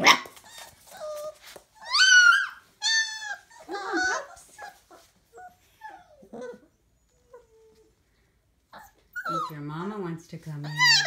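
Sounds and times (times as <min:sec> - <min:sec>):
puppies whimpering and yelping: 0:00.0 - 0:08.0, 0:08.6 - 0:09.9, 0:10.6 - 0:11.0.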